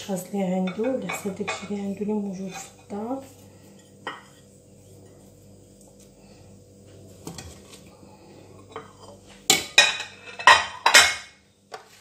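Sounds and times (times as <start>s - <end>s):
metal pot clanking: 8.7s - 11.4s.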